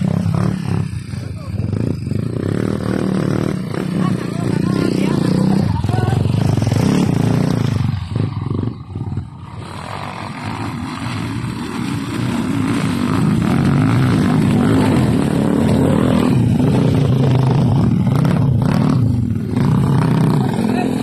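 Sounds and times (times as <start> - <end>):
dirt bike engine approaching: 0.0 - 21.0
dirt bike engine revving: 0.0 - 21.0.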